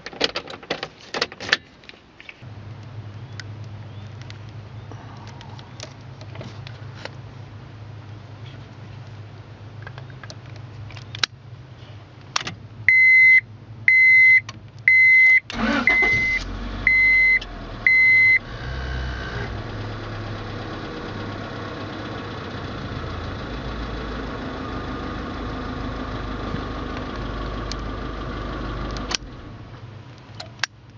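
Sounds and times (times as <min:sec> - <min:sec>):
dashboard warning chime beeping: 0:12.9 - 0:18.5
car engine starting and idling: 0:14.5 - 0:30.9.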